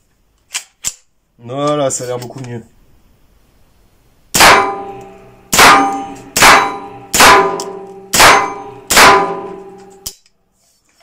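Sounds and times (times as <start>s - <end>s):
rifle shots echoing indoors: 4.3s - 10.1s.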